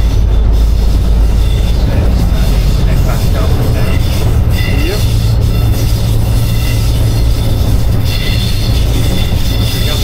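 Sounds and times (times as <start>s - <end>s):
diesel locomotive engine drone: 0.0s - 10.0s
wheel and track noise: 0.0s - 10.0s
faint high squeal: 3.8s - 10.0s.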